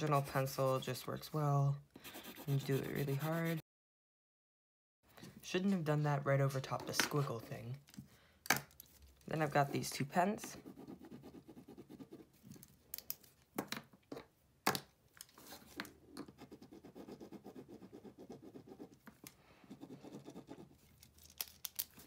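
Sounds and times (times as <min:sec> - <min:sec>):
pen scribbling on paper: 0:02.0 - 0:03.6, 0:16.4 - 0:18.9, 0:19.7 - 0:20.7.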